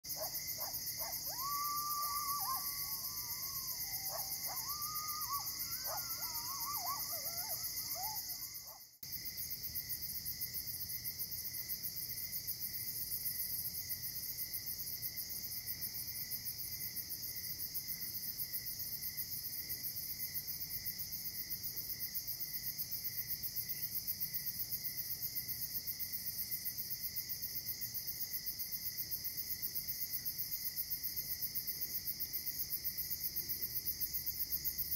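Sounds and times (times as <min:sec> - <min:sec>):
crickets trilling: 0:00.1 - 0:10.8
distant wavering gliding calls: 0:00.6 - 0:08.8.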